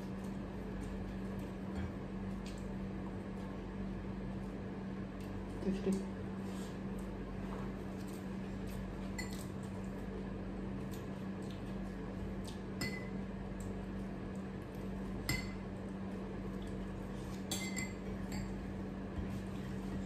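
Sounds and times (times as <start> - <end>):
steady low hum: 0.0 - 20.0
metal spoon clinking on dishes: 17.5 - 18.5.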